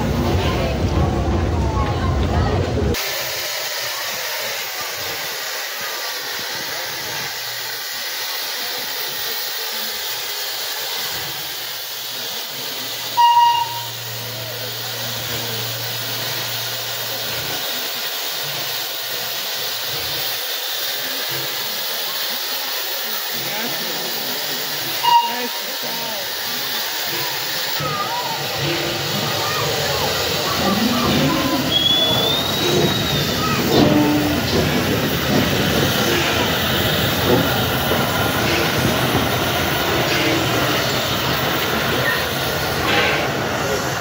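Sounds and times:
steam hissing: 0:02.9 - 0:44.0
steam locomotive whistle toots: 0:13.0 - 0:14.7, 0:24.9 - 0:26.3, 0:30.6 - 0:34.8.

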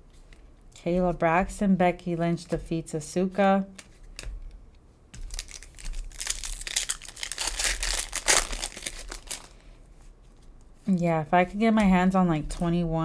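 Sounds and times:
foil wrapper crinkling and tearing: 0:05.2 - 0:09.7.

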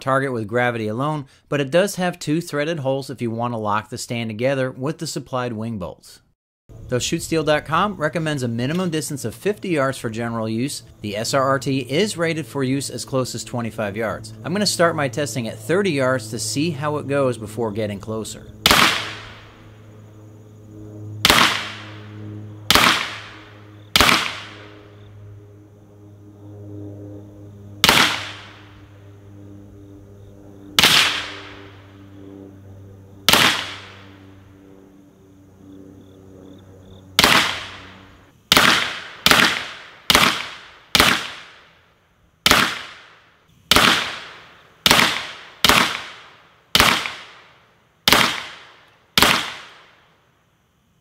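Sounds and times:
low steady hum: 0:06.7 - 0:41.0
rifle shots hitting steel plate: 0:18.7 - 0:19.4, 0:21.2 - 0:22.0, 0:22.7 - 0:23.4, 0:24.0 - 0:24.7, 0:27.8 - 0:28.6, 0:30.8 - 0:31.5, 0:33.3 - 0:34.0, 0:37.2 - 0:37.9, 0:38.5 - 0:41.6, 0:42.5 - 0:43.1, 0:43.7 - 0:46.2, 0:46.8 - 0:47.4, 0:48.1 - 0:48.6, 0:49.2 - 0:49.8.

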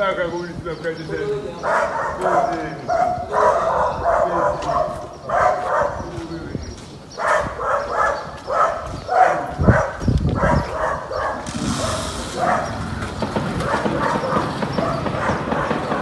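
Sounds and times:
dog barking: 0:01.6 - 0:06.2, 0:07.2 - 0:12.8, 0:13.6 - 0:16.0.

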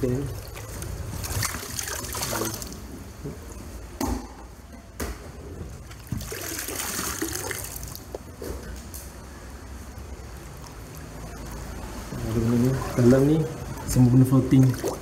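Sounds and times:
water pouring and splashing: 0:00.0 - 0:02.9, 0:05.7 - 0:08.2, 0:10.6 - 0:15.0.

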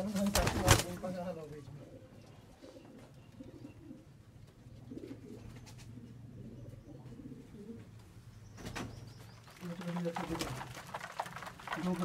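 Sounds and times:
pigeons cooing: 0:00.0 - 0:09.6.

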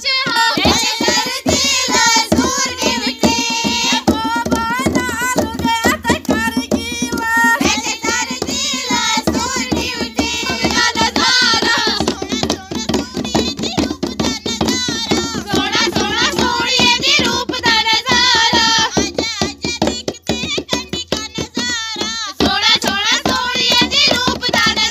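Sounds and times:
goblet drums beaten by hand: 0:00.0 - 0:24.9
women singing together: 0:00.0 - 0:24.9.

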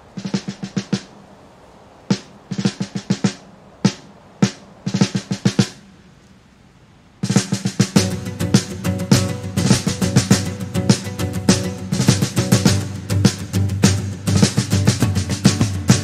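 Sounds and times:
snare drum rolls and fills: 0:00.0 - 0:01.2, 0:02.0 - 0:05.9, 0:07.2 - 0:16.0.

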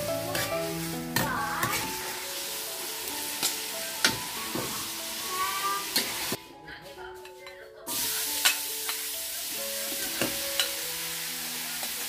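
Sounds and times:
offal sizzling in a wok: 0:00.0 - 0:06.4, 0:07.9 - 0:12.0
metal utensil scraping a pan: 0:00.2 - 0:02.2, 0:03.3 - 0:04.8.

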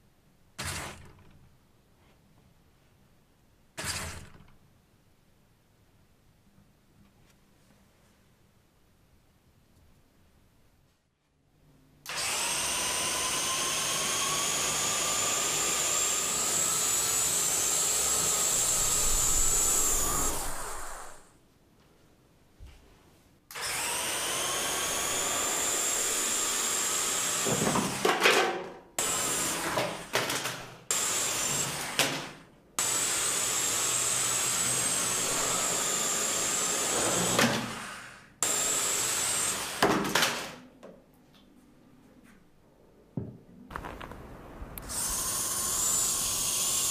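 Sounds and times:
electric motors whining: 0:12.1 - 0:21.3.

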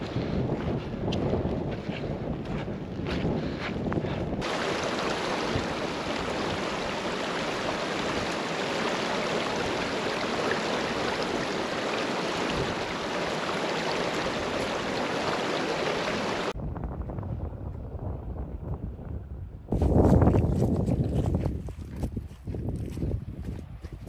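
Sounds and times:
stream rushing over stones: 0:04.4 - 0:16.6.

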